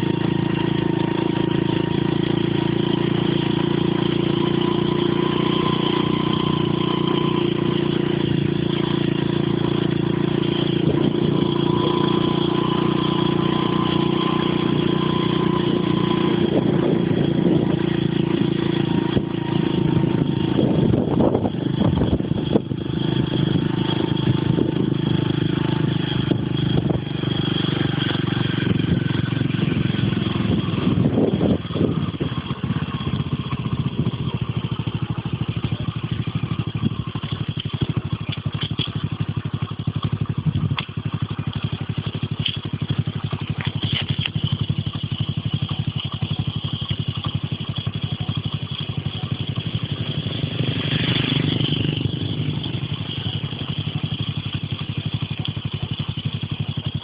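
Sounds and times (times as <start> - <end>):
road and wind noise: 0.0 - 57.0
vehicle engine running: 0.0 - 57.0.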